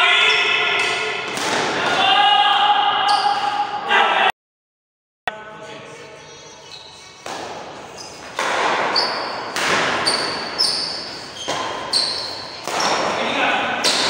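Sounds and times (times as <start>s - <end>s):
racket hitting shuttlecock: 0.8s - 2.0s, 7.2s - 14.0s
shoes squeaking on court floor: 6.5s - 13.2s.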